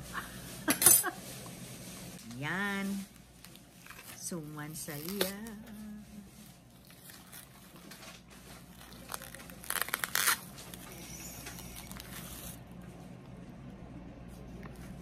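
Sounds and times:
plastic wrap crinkling and tearing: 2.2s - 12.8s.

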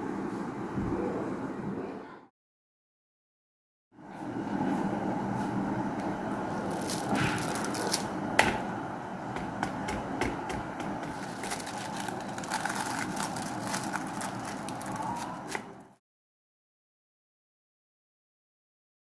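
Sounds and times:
steady low hum: 4.0s - 16.0s
paper and frozen food crackling: 6.6s - 8.2s, 11.0s - 16.0s.

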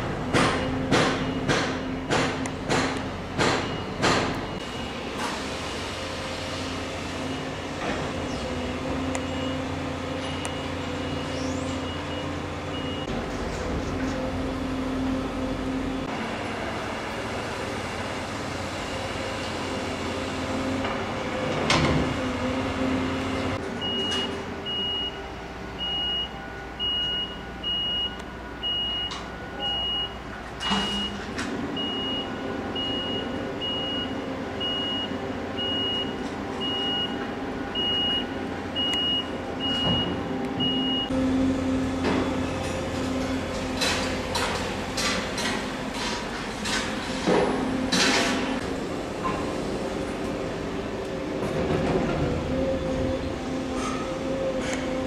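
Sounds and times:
engine running: 0.0s - 55.0s
reversing alarm beeping: 0.3s - 2.2s, 3.6s - 5.2s, 9.1s - 13.1s, 18.7s - 20.3s, 23.1s - 42.6s
sharp metallic knocks: 0.3s - 4.4s.

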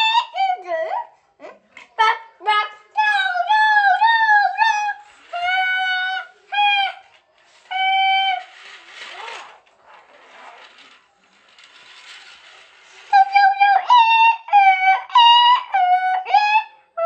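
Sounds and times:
toy train rattling on plastic track: 4.8s - 13.8s.

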